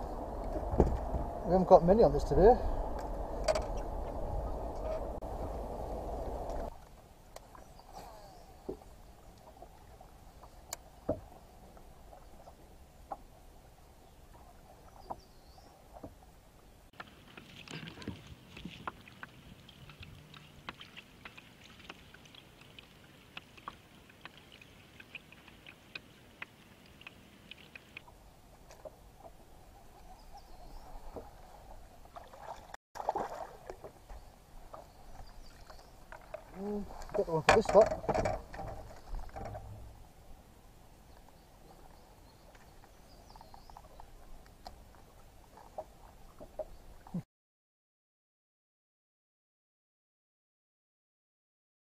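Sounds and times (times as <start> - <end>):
low outdoor rumble: 0.0 - 7.2
water lapping against boat hull: 0.0 - 40.3, 41.1 - 47.2
clicks and taps handling fish: 37.1 - 39.8.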